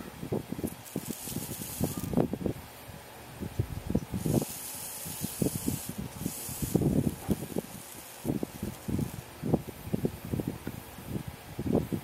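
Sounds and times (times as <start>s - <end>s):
tiny servo motors whirring: 0.6s - 2.3s, 4.1s - 9.3s.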